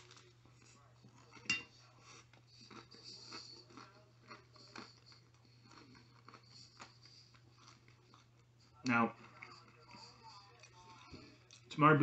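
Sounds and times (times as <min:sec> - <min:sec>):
chewing with mouth closed: 0:00.0 - 0:11.8.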